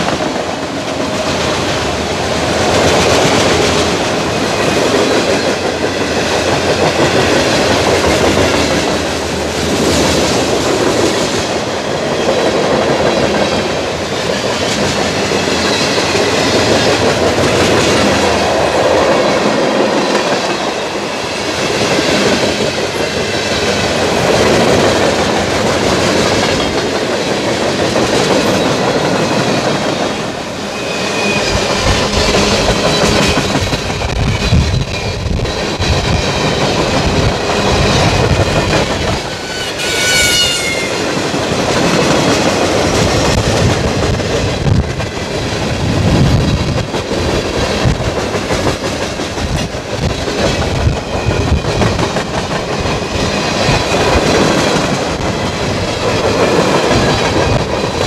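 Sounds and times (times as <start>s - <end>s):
train wheels clattering on rails: 0.0s - 58.0s
high-pitched wheel squeal: 30.7s - 33.2s, 39.4s - 41.0s.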